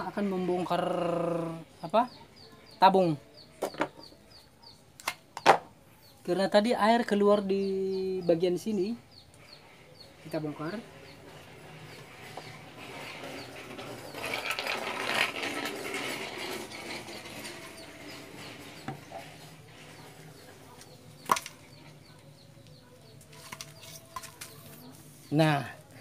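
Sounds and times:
threaded joint grating: 10.2 - 21.3.

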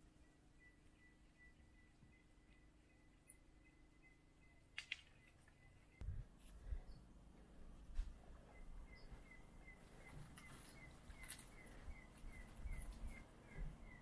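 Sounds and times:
faint footsteps on stone steps: 7.4 - 14.0.

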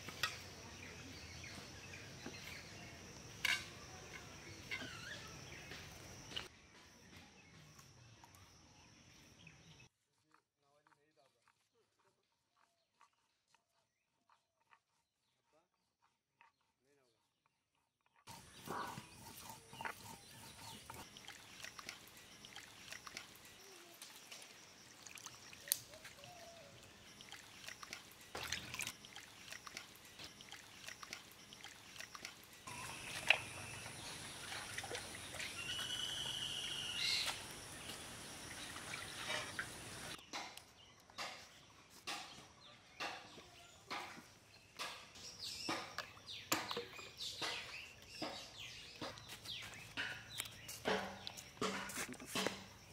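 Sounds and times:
birds calling: 18.2 - 52.9
water sloshing in metal bowl: 24.1 - 26.2, 26.8 - 35.8, 37.8 - 40.2.

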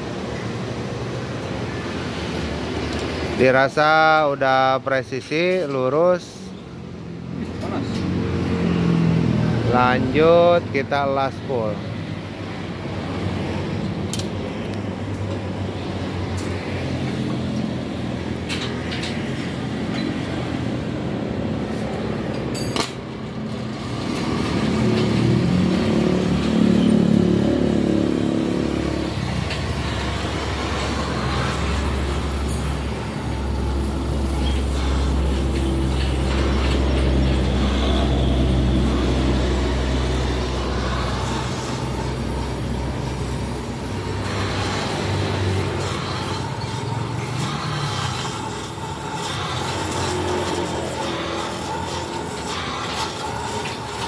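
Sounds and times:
arc welding hiss: 40.7 - 54.0.

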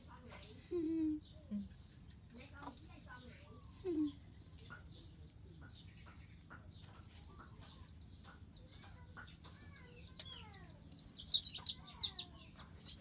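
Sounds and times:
birds calling: 1.2 - 13.0
high bird chirps with clicks: 7.6 - 13.0.

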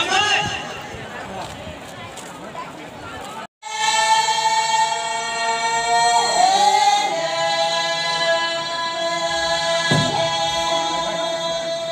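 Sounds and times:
folk dance music: 7.2 - 11.9
short knock: 9.9 - 10.4.

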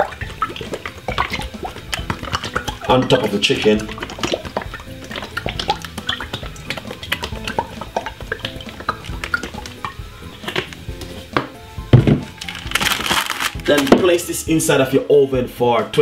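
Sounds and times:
quiet background music: 0.0 - 16.0
kitchen clicks and knocks: 9.1 - 14.2
loud thump: 11.4 - 12.4.

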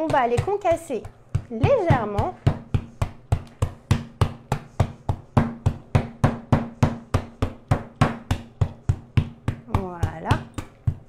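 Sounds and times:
rolling pin pounding nuts: 0.0 - 11.0.

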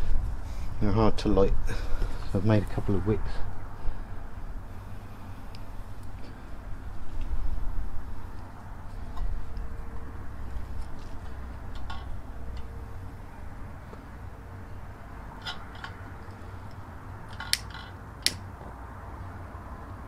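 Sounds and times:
steady low rumble: 0.0 - 20.0
metal clicks and clinks: 11.7 - 12.7, 15.4 - 18.4.

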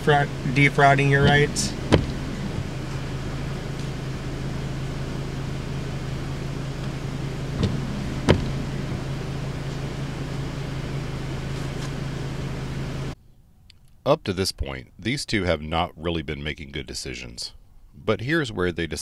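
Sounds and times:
low hum inside car: 0.0 - 13.4
background hiss: 0.0 - 19.0.

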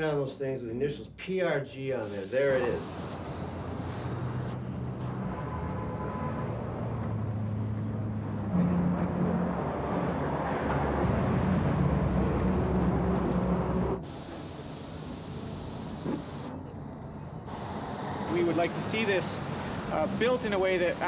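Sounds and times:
heavy vehicle engine passing: 3.4 - 14.2, 16.5 - 21.0.

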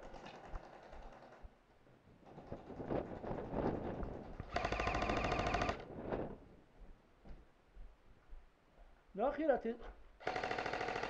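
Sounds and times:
airsoft rifle full-auto burst: 4.5 - 5.8, 10.2 - 11.0.

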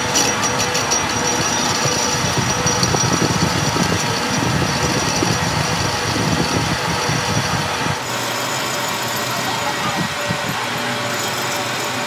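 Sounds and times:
engine running with low rumble: 0.0 - 8.1.

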